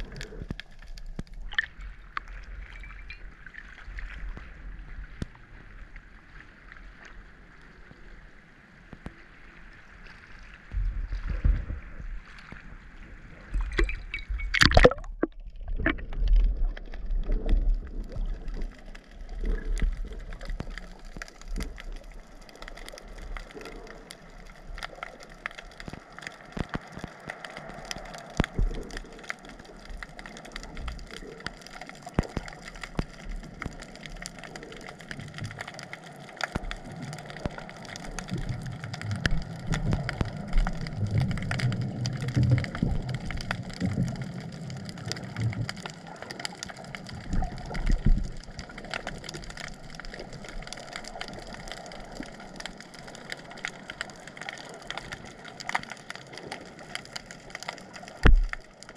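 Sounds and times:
muffled underwater sound: 0:00.0 - 0:58.9
loud splash: 0:14.5 - 0:16.0.

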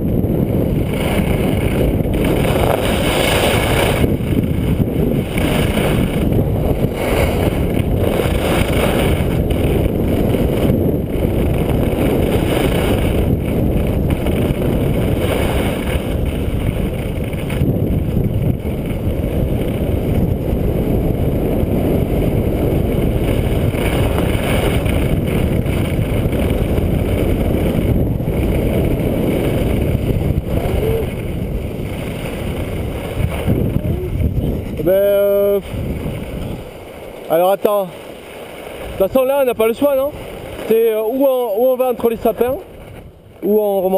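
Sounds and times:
skis sliding over snow: 0:00.0 - 0:43.9
wind buffeting microphone: 0:00.0 - 0:43.9.

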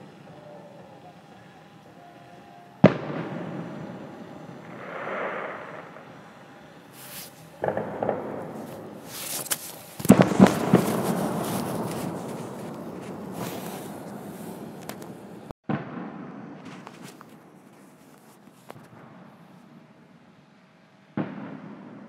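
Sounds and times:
rolling rumble: 0:00.0 - 0:15.5
fireworks bursting: 0:00.0 - 0:20.0, 0:21.2 - 0:22.0
faint cracks: 0:04.2 - 0:15.5.

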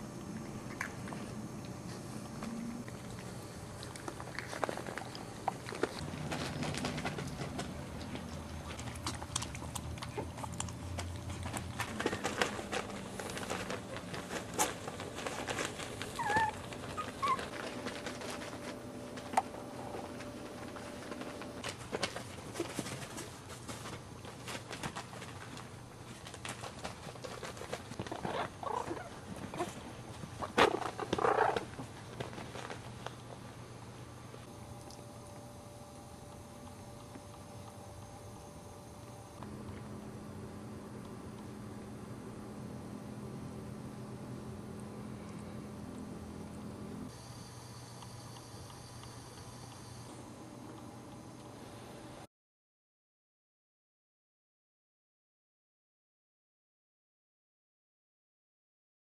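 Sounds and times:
puppies playing: 0:00.0 - 0:33.6
puppy squeaks: 0:16.1 - 0:17.5.

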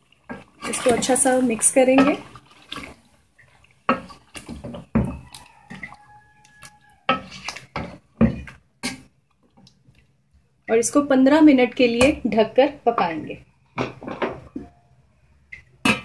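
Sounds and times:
wooden spoon stirring thick paste: 0:00.0 - 0:11.0.

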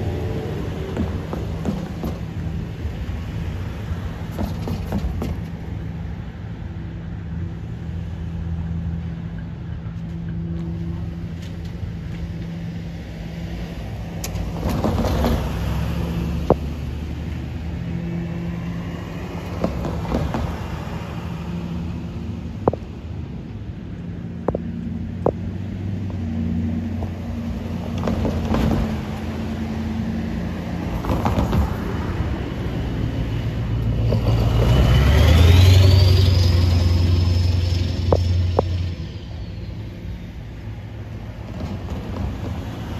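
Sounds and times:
cars passing: 0:00.0 - 0:42.9
low engine drone: 0:16.0 - 0:42.9.

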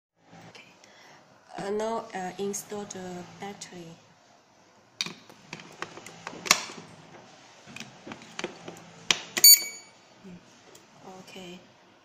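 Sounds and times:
short high beep: 0:09.4 - 0:09.9.

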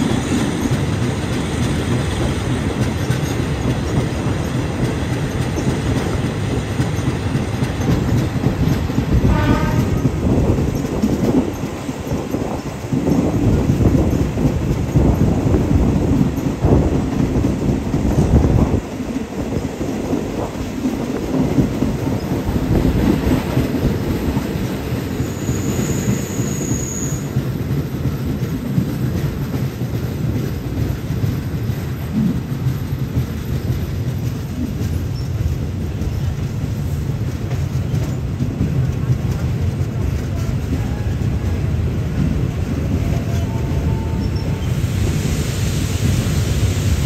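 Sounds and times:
train wheels rumbling on rails: 0:00.0 - 0:47.0
high wheel squeal: 0:25.1 - 0:27.4.

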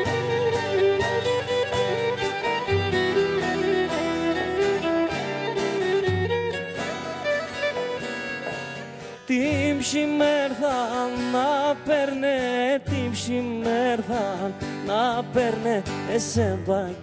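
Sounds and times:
bowed lyra melody: 0:00.0 - 0:09.4
acoustic guitar: 0:00.0 - 0:17.0
man singing with vibrato: 0:09.1 - 0:17.0.

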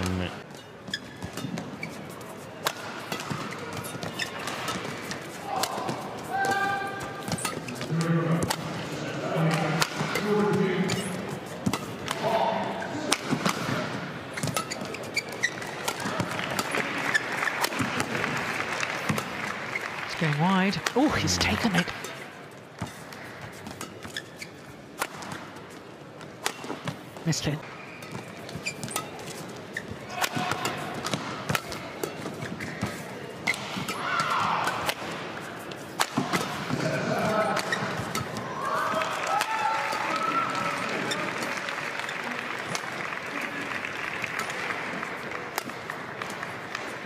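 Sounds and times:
shoe squeak: 0:00.0 - 0:02.5, 0:03.1 - 0:05.4, 0:06.3 - 0:07.9, 0:10.8 - 0:11.9, 0:14.3 - 0:16.2, 0:22.8 - 0:24.7, 0:27.8 - 0:30.8, 0:31.7 - 0:34.0
shoes squeaking on court: 0:00.0 - 0:08.6, 0:10.1 - 0:12.1, 0:12.8 - 0:18.2, 0:18.9 - 0:38.5
indoor arena background: 0:00.0 - 0:47.0
rackets hitting shuttlecock: 0:02.6 - 0:08.8, 0:15.6 - 0:18.2, 0:30.1 - 0:35.2, 0:36.0 - 0:38.4
rackets striking shuttlecock: 0:30.1 - 0:35.2.

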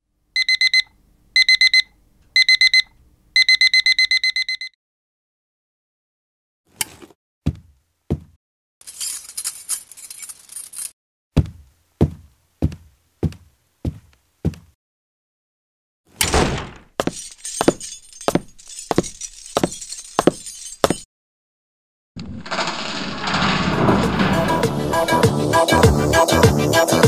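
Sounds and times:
alarm clock beeping: 0:00.4 - 0:04.8.

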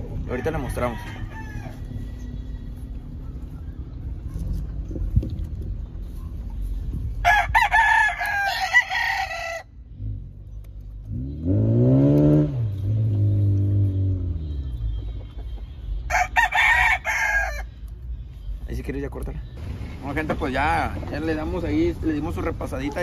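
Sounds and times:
rooster crowing: 0:00.3 - 0:02.7, 0:07.2 - 0:09.7, 0:16.1 - 0:17.8.

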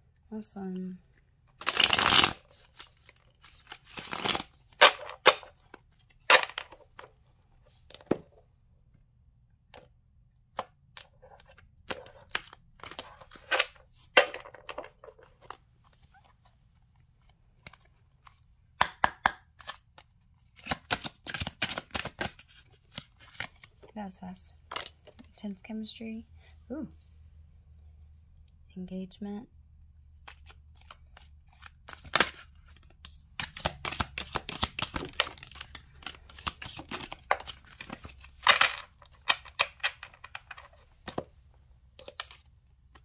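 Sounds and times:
cards shuffling: 0:01.6 - 0:07.1, 0:10.6 - 0:16.4, 0:17.2 - 0:18.5, 0:19.2 - 0:23.8, 0:30.1 - 0:41.4, 0:42.0 - 0:43.0
cards snapping and tapping on table: 0:18.8 - 0:19.8.

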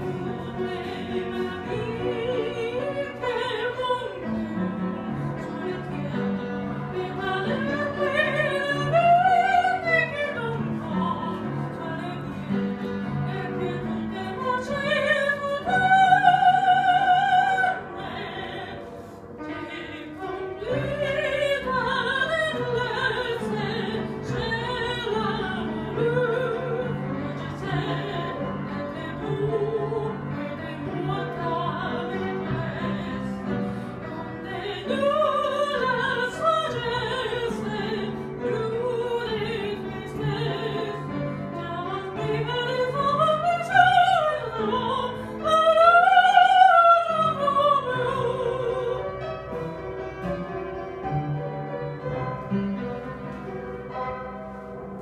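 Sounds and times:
woman singing operatically: 0:00.0 - 0:04.6, 0:05.4 - 0:18.8, 0:19.5 - 0:33.6, 0:34.4 - 0:49.1
upright piano: 0:00.0 - 0:55.0.

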